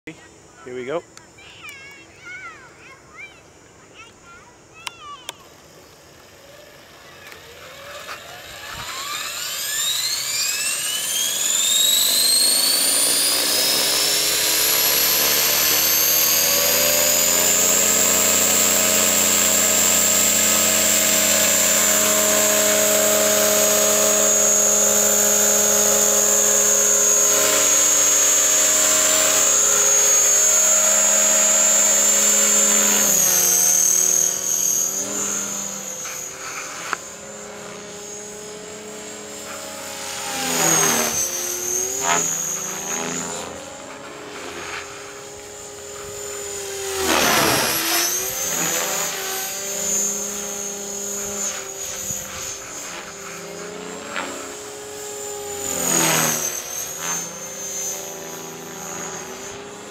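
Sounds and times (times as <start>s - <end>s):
rc helicopter rotor whine: 0.1s - 59.9s.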